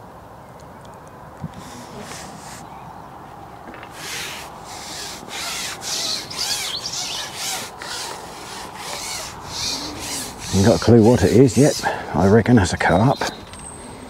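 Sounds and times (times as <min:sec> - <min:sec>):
fishing pole rasping rubbing: 0:01.6 - 0:02.7, 0:03.9 - 0:12.1.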